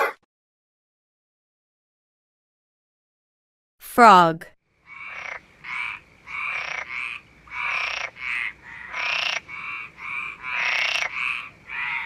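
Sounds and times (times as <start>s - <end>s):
frog croaking: 4.8s - 12.0s.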